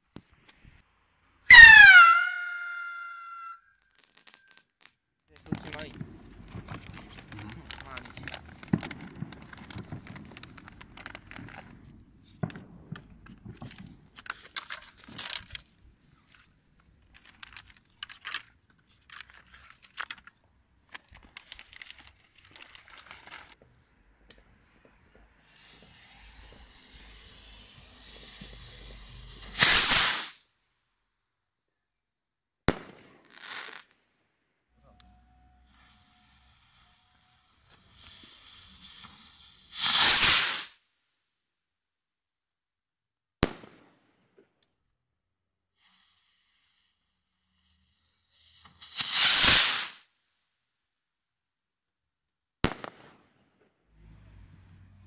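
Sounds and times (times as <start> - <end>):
sharp crack: 1.5 - 13.5, 29.4 - 30.4, 39.8 - 40.8, 48.8 - 50.0, 52.6 - 53.4
fireworks popping and crackling: 1.5 - 23.7, 24.3 - 30.4, 32.7 - 34.0, 35.6 - 40.8, 43.4 - 44.6, 48.3 - 50.1, 52.6 - 53.8
firework hiss and burst: 5.4 - 16.3, 24.7 - 30.5, 35.6 - 40.8, 45.7 - 50.1.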